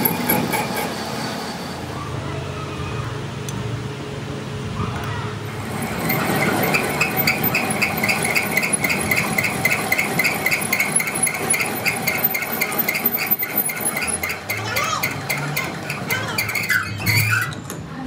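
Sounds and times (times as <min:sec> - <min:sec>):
mechanical background noise: 0:00.0 - 0:18.0.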